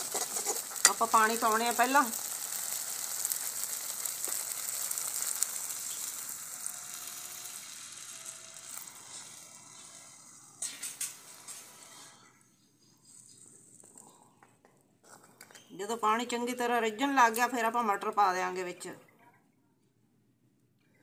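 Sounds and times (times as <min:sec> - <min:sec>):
water sizzling in hot pan: 0:00.0 - 0:12.2.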